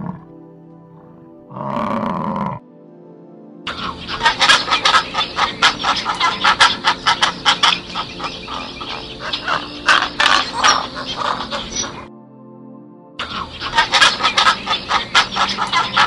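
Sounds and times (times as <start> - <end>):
flock of birds calling: 3.7 - 12.1, 13.2 - 16.0.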